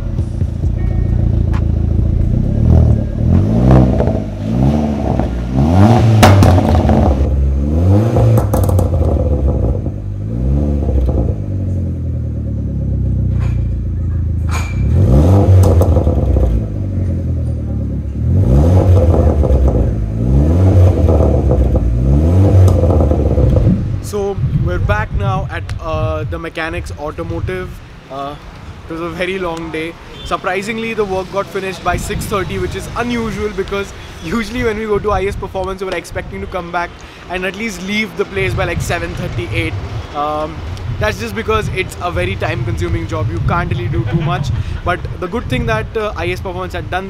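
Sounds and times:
car engine idling: 0.0 - 24.5
car engine revving: 0.0 - 24.5, 36.2 - 47.0.

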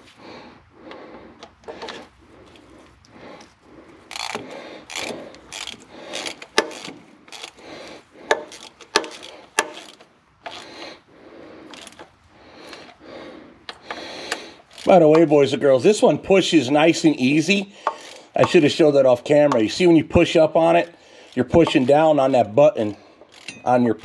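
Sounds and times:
ratchet wrench clicking: 4.1 - 10.8, 11.7 - 12.1, 13.8 - 15.3, 23.3 - 23.8
sharp metal clicks: 4.1 - 10.8, 23.2 - 24.0.

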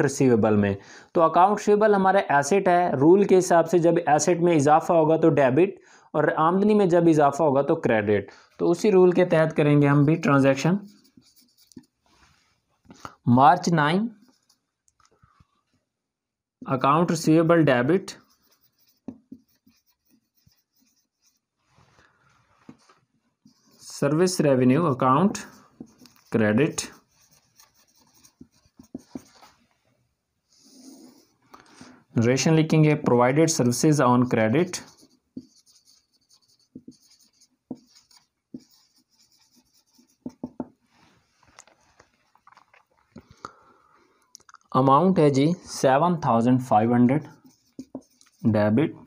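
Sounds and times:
marker squeaking on whiteboard: 10.0 - 12.0, 14.1 - 14.7, 17.4 - 21.5, 22.7 - 29.6, 30.5 - 31.4, 34.4 - 40.7, 47.2 - 48.7
marker tapping on whiteboard: 18.8 - 19.7, 28.4 - 29.3, 35.4 - 38.9, 40.1 - 40.8, 47.7 - 48.2
marker tip tapping whiteboard: 40.2 - 40.7.

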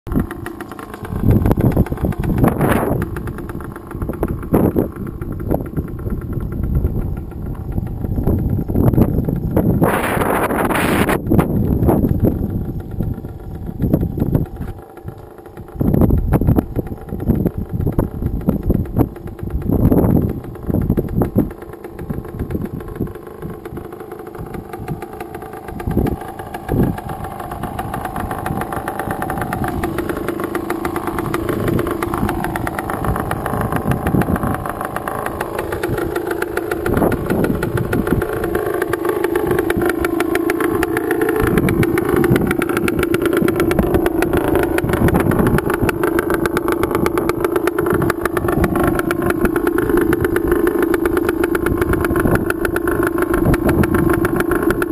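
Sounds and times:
dirt bike engine idling: 0.0 - 54.9.

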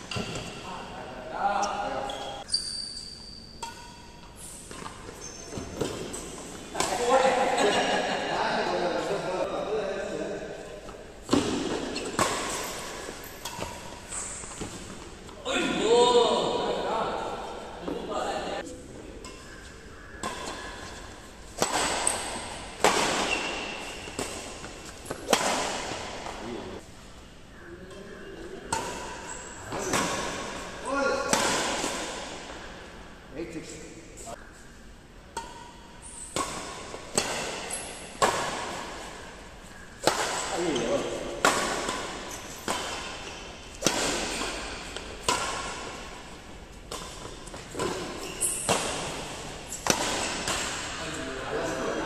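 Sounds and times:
short high squeak: 2.0 - 3.6
racket striking shuttlecock: 3.6 - 4.9, 11.2 - 15.0, 20.2 - 26.4, 31.3 - 32.6, 35.3 - 39.3, 40.0 - 51.0.

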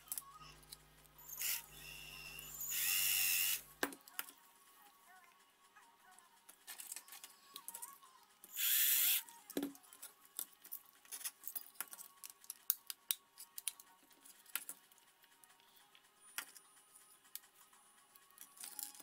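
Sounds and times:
faint background music: 0.0 - 19.0
cordless drill running: 1.3 - 3.6, 8.5 - 9.2.

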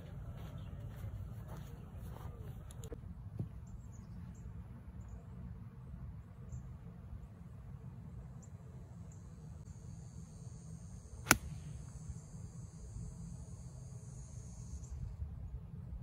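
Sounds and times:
faint insect chirping: 7.9 - 16.0
golf club striking ball: 11.2 - 11.7.

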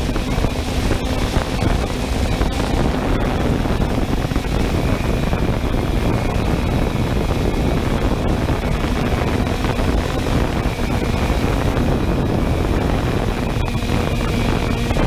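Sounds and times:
drone propellers: 0.0 - 15.0
wind noise on microphone: 0.0 - 15.0.

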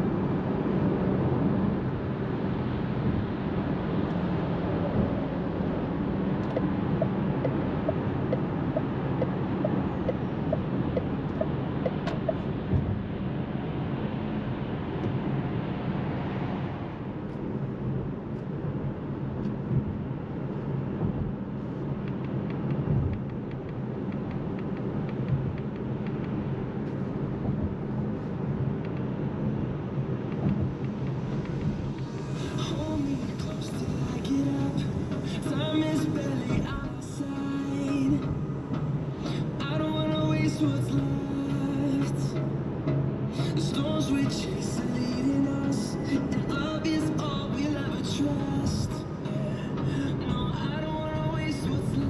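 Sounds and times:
road and tyre noise in car: 0.0 - 52.0
light regular ticking: 21.0 - 27.9.

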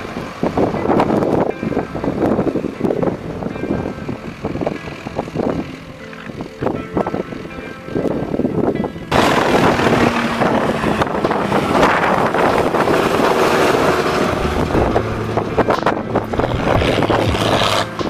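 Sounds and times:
wind buffeting microphone: 0.0 - 18.0
tractor engine driving by: 9.1 - 18.0.

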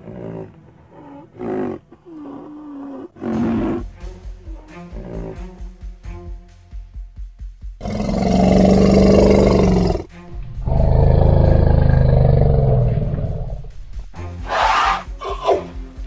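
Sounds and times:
animal roar: 0.0 - 3.9, 7.8 - 15.7
background music with beat: 3.6 - 7.8.

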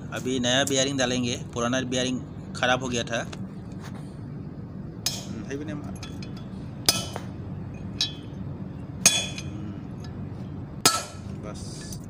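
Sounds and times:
hammer striking metal drift: 6.0 - 8.4, 9.0 - 10.2, 10.8 - 12.0.

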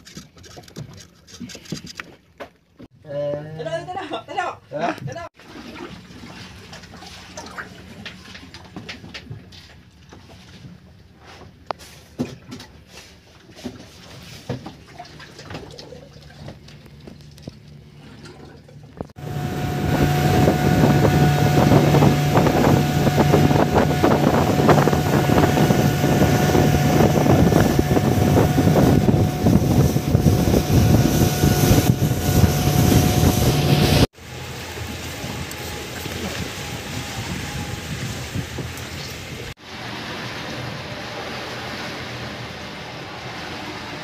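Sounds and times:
boat engine humming: 5.6 - 44.0
wind and water rushing: 19.0 - 44.0.

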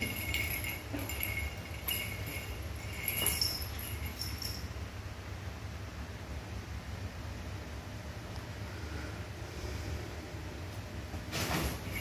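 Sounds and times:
small jingle bell jingling: 0.0 - 4.8, 11.7 - 12.0
steady low hum: 0.0 - 12.0.

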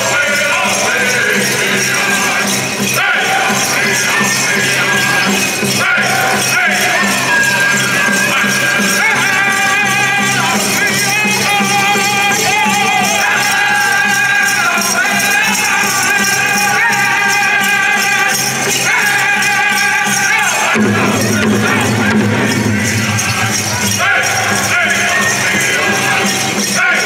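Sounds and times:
group singing in wavering voices: 0.0 - 27.0
metallic jingling: 0.0 - 27.0
steady drumbeat: 0.0 - 27.0.

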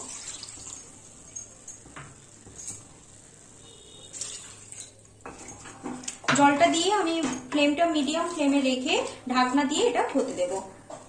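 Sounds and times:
water pouring into pan: 0.0 - 1.3.

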